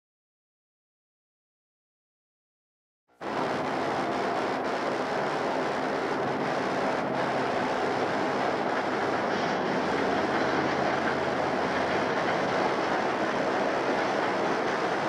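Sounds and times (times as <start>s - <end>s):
train wheels on rails: 3.2s - 15.0s
diesel engines rumbling: 5.8s - 15.0s.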